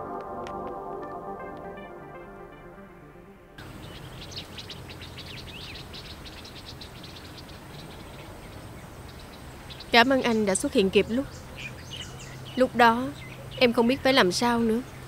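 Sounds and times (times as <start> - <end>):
soft background music: 0.0 - 5.1
small birds chirping: 3.6 - 15.0.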